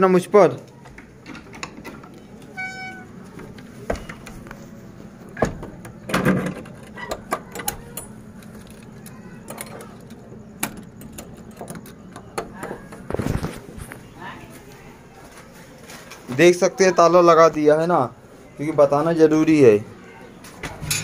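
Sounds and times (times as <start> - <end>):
door squeak: 2.5 - 3.2, 5.4 - 8.2
metal lock clicks and knocks: 5.4 - 13.1.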